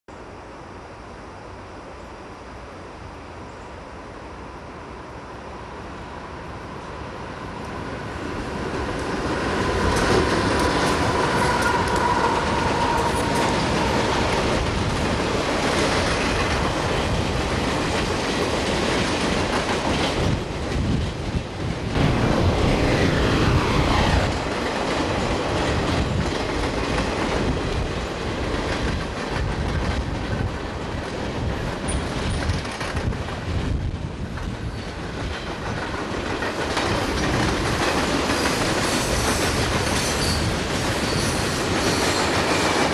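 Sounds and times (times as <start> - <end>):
train wheels rumbling and clacking: 8.8 - 21.4, 25.9 - 42.9
train wheel squeal: 10.8 - 14.6, 38.2 - 42.9.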